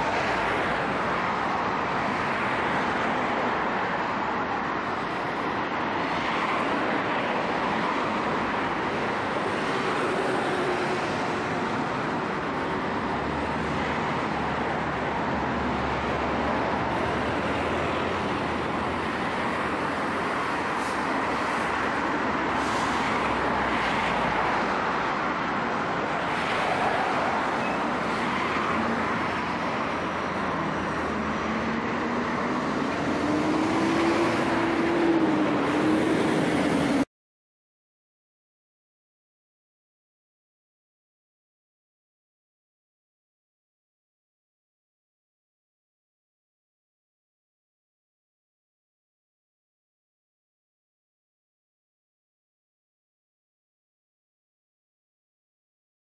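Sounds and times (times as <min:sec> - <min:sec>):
city street traffic: 0:00.0 - 0:37.1.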